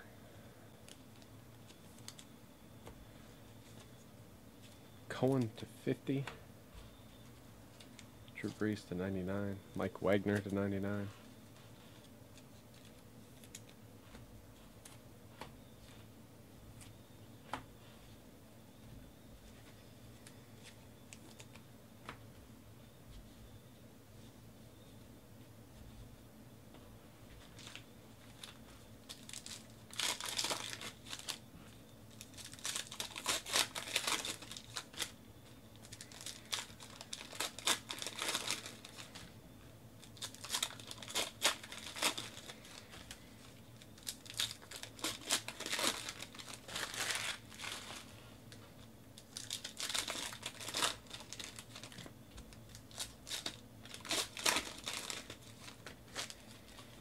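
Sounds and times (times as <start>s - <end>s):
wrappers crinkling and tearing: 27.5s - 31.4s, 32.1s - 39.4s, 40.0s - 57.0s.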